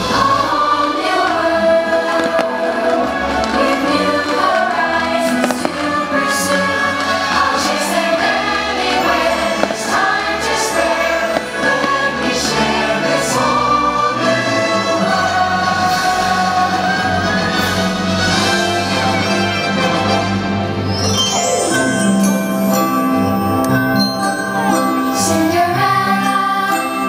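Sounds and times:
choir singing with music: 0:00.0 - 0:27.0
fireworks popping: 0:02.0 - 0:04.0, 0:05.3 - 0:07.1, 0:09.5 - 0:10.2, 0:11.0 - 0:12.4.

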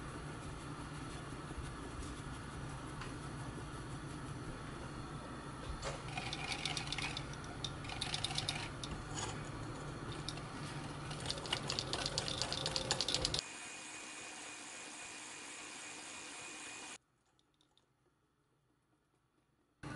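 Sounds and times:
whisk clicking against glass bowl: 0:06.1 - 0:09.0, 0:11.1 - 0:13.4.

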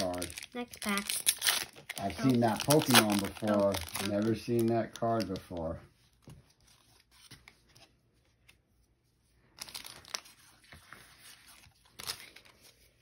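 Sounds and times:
foil wrapper crinkling: 0:00.0 - 0:05.8
cards being handled: 0:00.0 - 0:08.9, 0:09.5 - 0:13.0.

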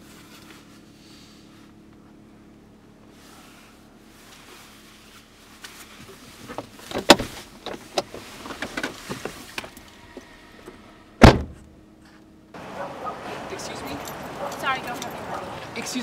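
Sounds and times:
car door shutting: 0:06.1 - 0:11.8.

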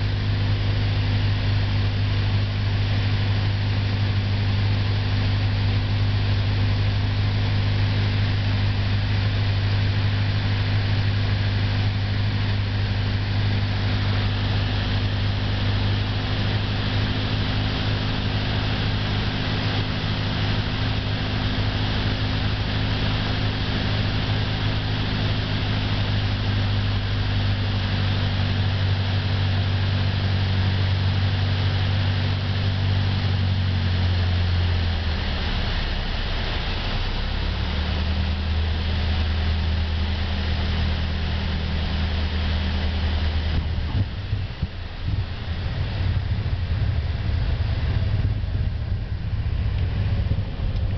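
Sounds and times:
light aircraft engine droning: 0:00.0 - 0:50.9
rushing air noise: 0:34.6 - 0:50.9.

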